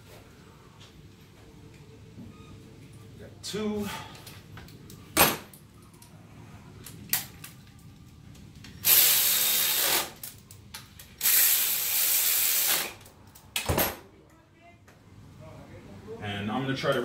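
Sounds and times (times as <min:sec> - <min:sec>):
cordless power ratchet running: 0:08.8 - 0:10.2.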